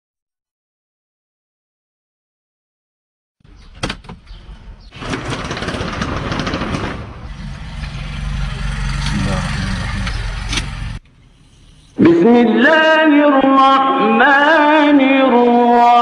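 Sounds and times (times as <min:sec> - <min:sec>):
car engine starting and idling: 0:07.0 - 0:11.9.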